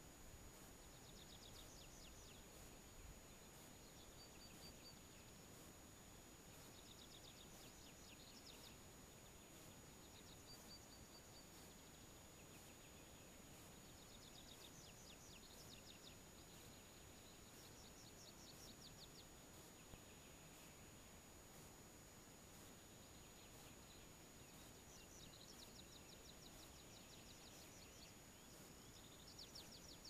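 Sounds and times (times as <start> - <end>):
low hiss: 0.0 - 30.0
thin steady high tone: 0.1 - 30.0
faint trilling birdsong: 0.5 - 30.0.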